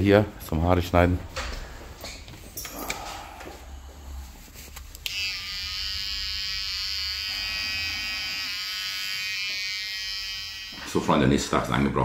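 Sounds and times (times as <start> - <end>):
electric hair clippers buzzing: 5.0 - 11.3.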